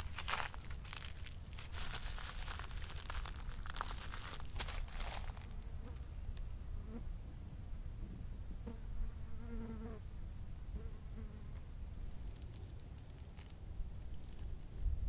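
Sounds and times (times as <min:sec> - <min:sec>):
dry leaf litter crackling: 0:00.0 - 0:06.4.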